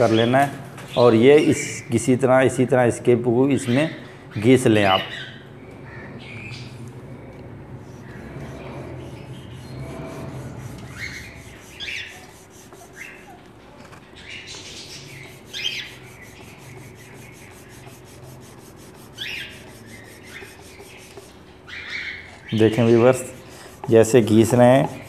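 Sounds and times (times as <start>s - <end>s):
garlic rasping on wet stone: 7.9s - 13.4s, 14.5s - 21.4s, 22.4s - 25.0s.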